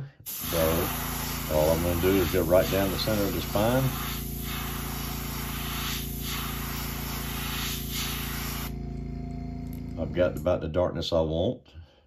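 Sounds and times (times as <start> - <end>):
airbrush spraying hiss: 0.2 - 8.8
steady low hum: 0.3 - 10.7.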